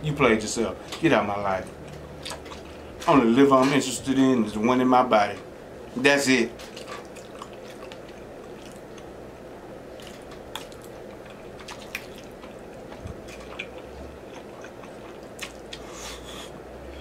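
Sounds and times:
man chewing and slurping: 1.8s - 3.0s, 6.6s - 9.2s, 9.8s - 16.6s.

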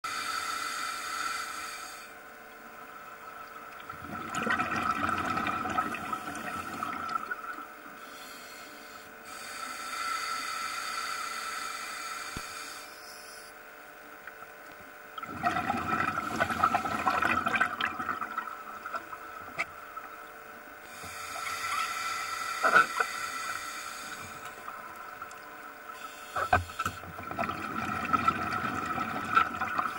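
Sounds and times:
scuba regulator bubbling exhales: 3.9s - 7.7s, 15.2s - 19.8s, 25.9s - 29.9s.

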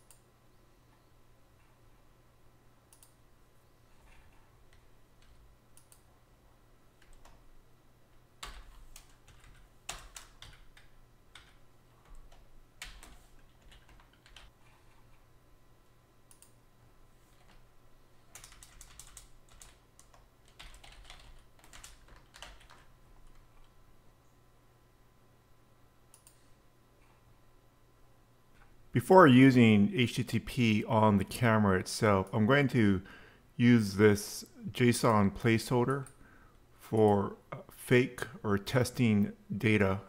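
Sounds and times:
low steady hum: 0.0s - 40.0s
typing on computer keyboard: 8.4s - 14.5s, 18.3s - 23.7s.

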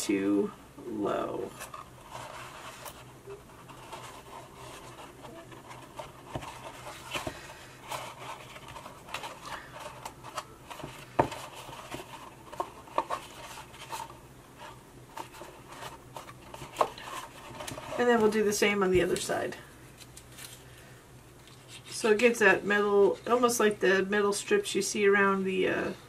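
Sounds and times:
paper rustling and rubbing: 1.4s - 19.2s.

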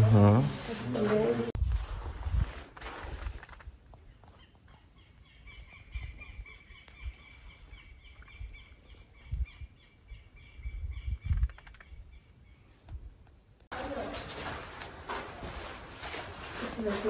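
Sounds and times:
bird chirping: 4.0s - 13.5s.

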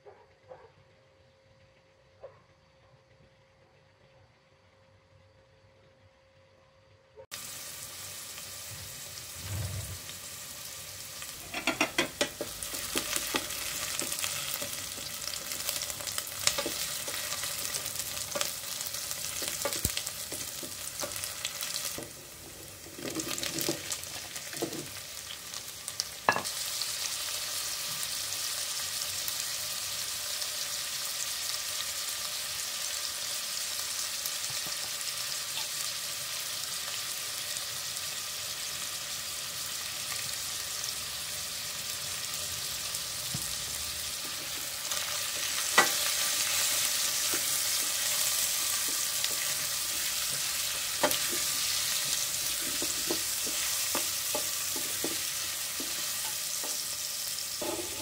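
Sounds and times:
onion sizzling in oil: 7.3s - 58.0s
spatula scraping a pot: 57.6s - 58.0s.

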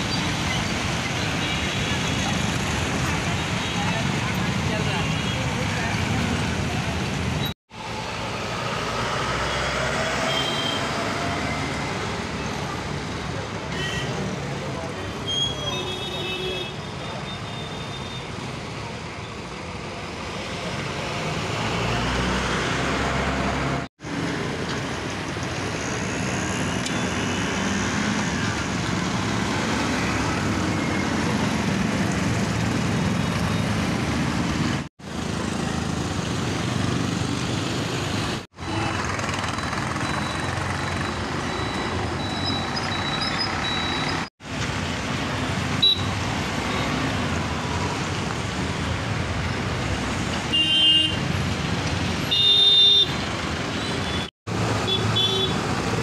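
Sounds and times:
vehicle engines running: 18.9s - 50.4s.

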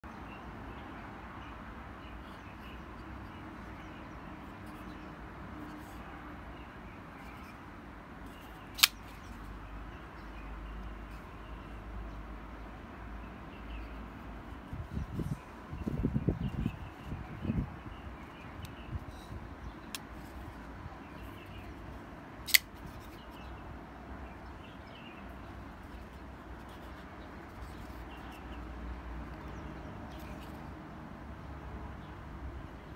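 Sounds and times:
faint background noise: 0.1s - 32.9s
folding knife snapping open: 8.8s - 9.0s, 22.5s - 22.7s.

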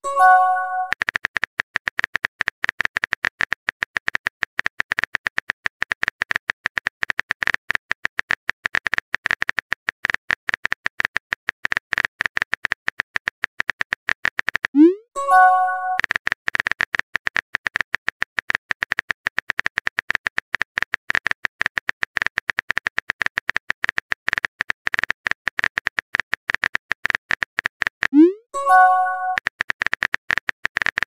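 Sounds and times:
keyboard clicks: 0.0s - 1.2s, 13.6s - 31.0s.

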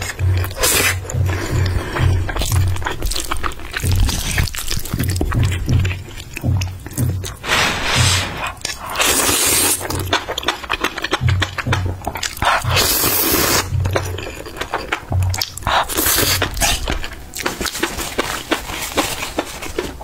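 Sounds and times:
wet chewing and smacking: 0.0s - 7.5s, 8.4s - 20.0s
music with thumping bass beat: 0.0s - 17.6s
person slurping noodles: 7.4s - 10.0s, 12.5s - 13.8s.

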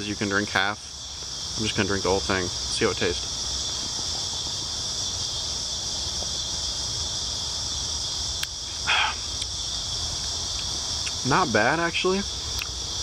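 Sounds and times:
crickets chirping: 0.0s - 13.0s
breathy puff: 8.8s - 9.2s.

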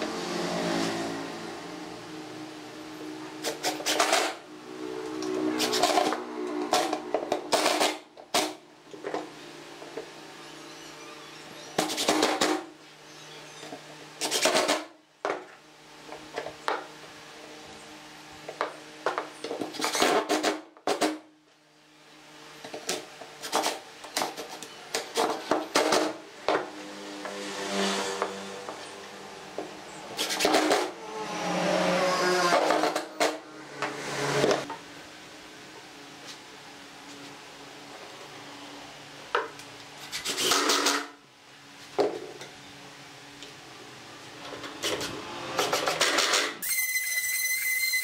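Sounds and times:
impact driver driving screws: 30.2s - 30.9s, 40.0s - 41.1s.

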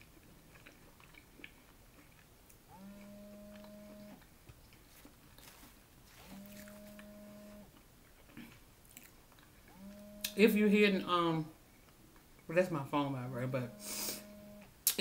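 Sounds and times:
chewing clicks: 0.2s - 4.8s
mobile phone vibrating: 2.7s - 4.2s, 6.2s - 7.7s, 9.7s - 10.4s, 13.4s - 14.6s.

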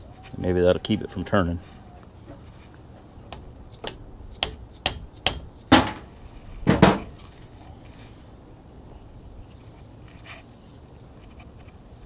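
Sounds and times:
hammer striking wrench: 3.8s - 5.5s.

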